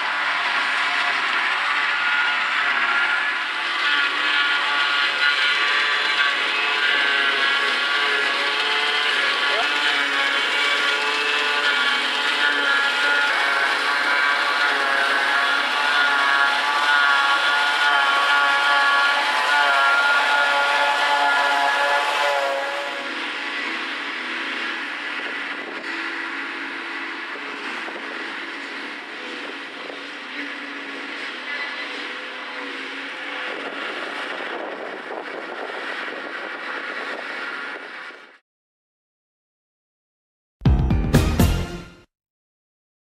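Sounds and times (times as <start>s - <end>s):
high machine whine: 0.0s - 21.9s
harvester machine drone: 0.0s - 38.4s.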